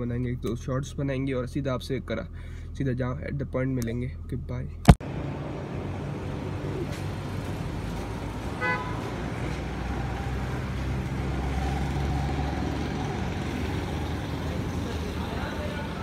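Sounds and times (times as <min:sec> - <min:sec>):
car horn toot: 0:08.6 - 0:09.1.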